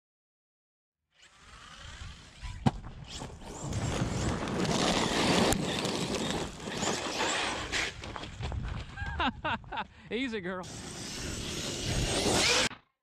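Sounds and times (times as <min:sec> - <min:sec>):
rc truck driving over gravel: 0:01.2 - 0:09.0, 0:10.6 - 0:12.7.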